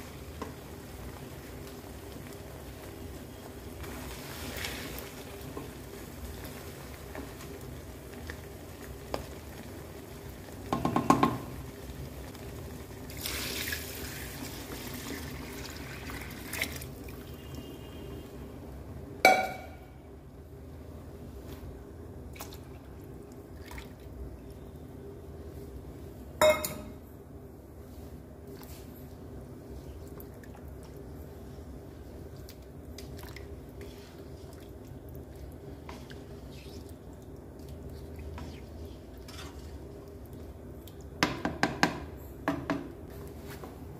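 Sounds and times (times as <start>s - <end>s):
liquid sloshing in pan: 0.0s - 9.8s, 27.9s - 41.5s
spatula scraping pan: 38.3s - 39.8s.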